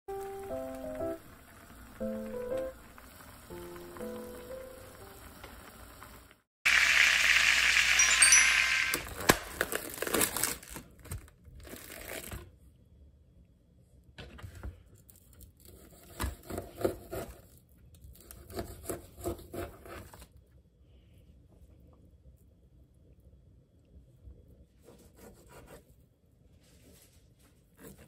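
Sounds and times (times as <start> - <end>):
plastic cling wrap crinkling and tearing: 8.9 - 12.5.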